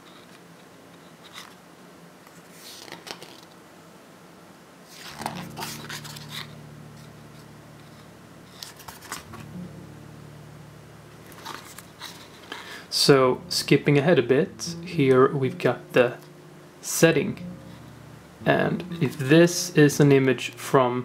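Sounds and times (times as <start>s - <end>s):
book pages turning: 2.3s - 3.6s
steady low hum: 5.1s - 21.0s.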